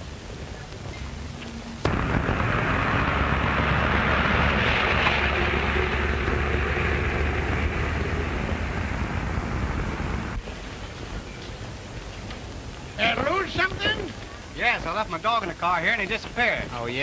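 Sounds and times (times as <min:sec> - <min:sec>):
car engine rumble: 0:00.0 - 0:12.5
film soundtrack hiss: 0:00.0 - 0:17.0
street traffic noise: 0:00.0 - 0:17.0.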